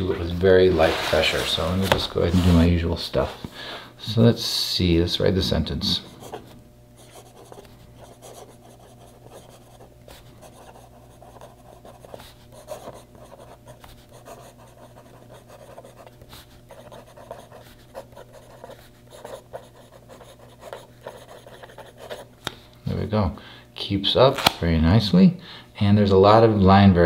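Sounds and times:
pen nib scratching on paper: 6.2s - 22.3s.

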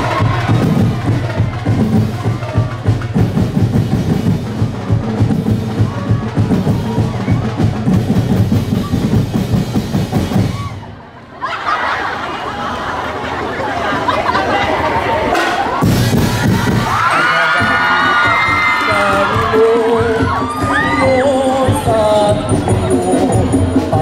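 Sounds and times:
bass drum: 0.0s - 10.7s, 15.8s - 24.0s
street-dance drum beat: 0.0s - 10.8s, 15.3s - 24.0s.

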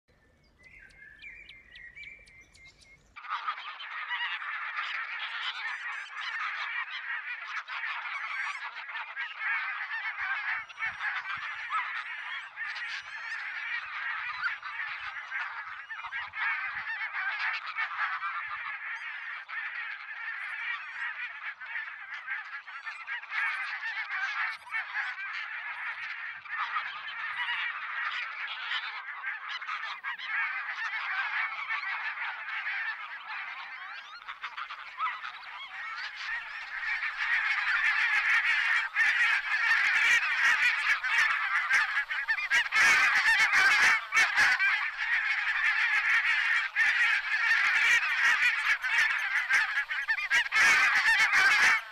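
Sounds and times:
flock of geese calling: 0.2s - 51.9s.

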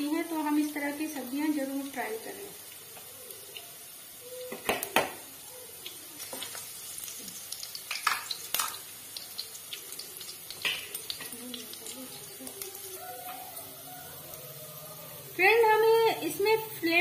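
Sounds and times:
garlic sizzling in hot oil: 0.0s - 17.0s
oil popping: 2.7s - 13.5s.

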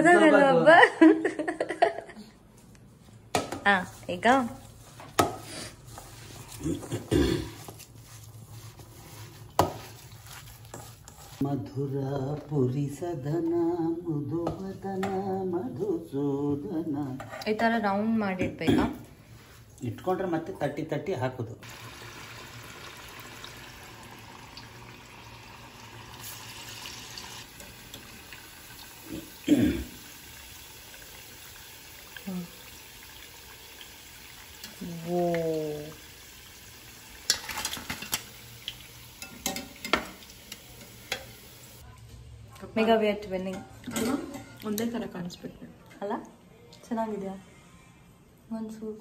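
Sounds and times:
hand mixing mixture in steel bowl: 3.9s - 11.6s
food sizzling in hot oil: 21.6s - 41.8s.

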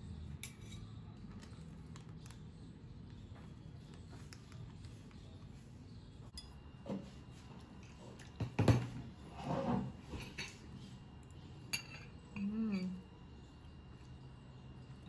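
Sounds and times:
cutlery clinking on ceramic plate: 11.7s - 12.2s.

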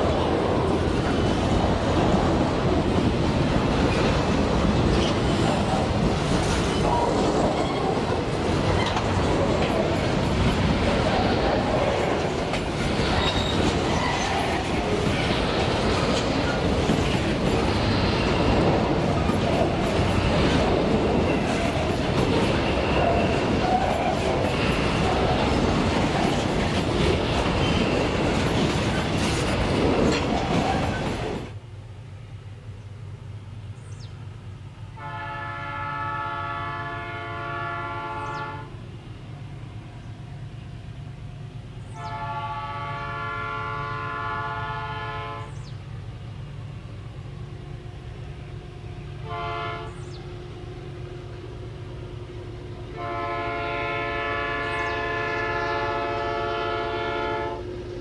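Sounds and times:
freight wagons rumbling and clattering: 0.0s - 31.5s
low rumble of approaching train: 0.0s - 58.0s
distant locomotive air horn: 34.9s - 38.8s, 41.9s - 45.7s, 49.2s - 50.2s, 52.9s - 57.8s.

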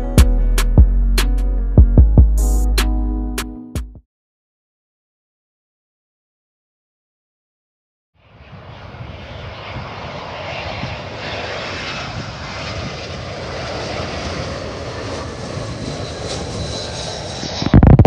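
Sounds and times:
jet engine noise: 8.2s - 18.0s
high whine: 13.3s - 18.0s.

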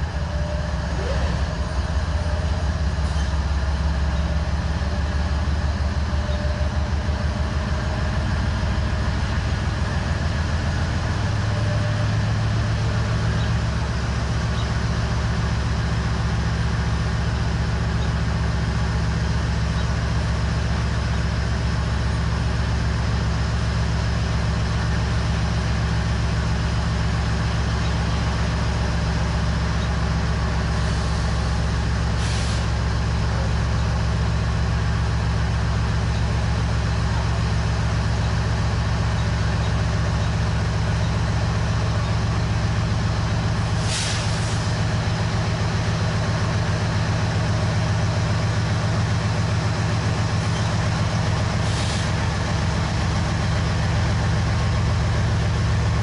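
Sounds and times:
diesel locomotive engine drone: 0.0s - 56.0s
air hissing: 43.8s - 44.7s.

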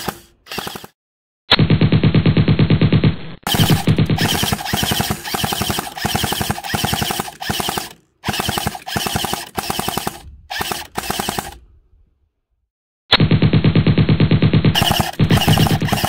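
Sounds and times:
toy machine gun firing: 0.0s - 1.0s, 3.5s - 11.6s, 14.8s - 16.0s.

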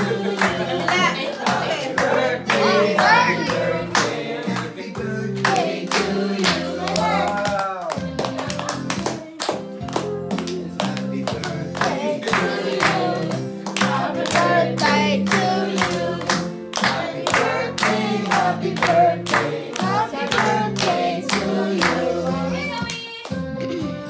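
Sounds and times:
group clapping in time: 0.0s - 22.2s
group singing a birthday song: 0.0s - 22.9s
music: 0.0s - 24.0s.

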